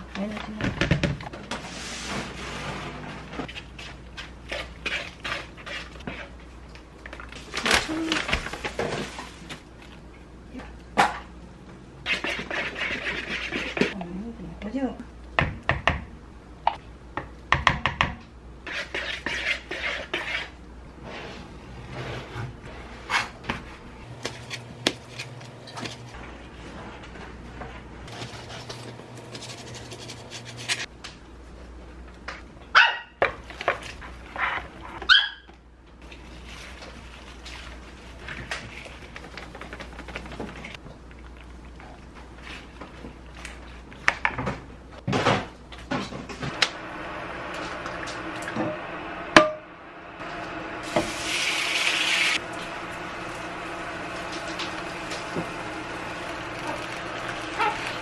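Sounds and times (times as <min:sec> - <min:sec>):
dog barking: 0:32.8 - 0:33.2, 0:35.1 - 0:35.5, 0:57.5 - 0:57.9.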